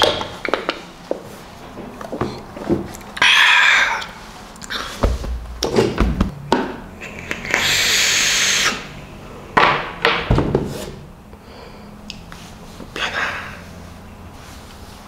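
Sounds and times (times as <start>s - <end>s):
air hissing through vape: 7.1s - 9.0s.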